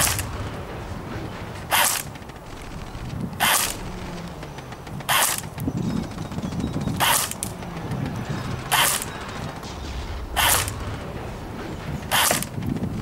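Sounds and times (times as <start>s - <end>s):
airsoft rifle shots: 0.0s - 0.5s, 1.6s - 6.2s, 6.8s - 7.7s, 8.3s - 11.0s, 12.1s - 12.6s.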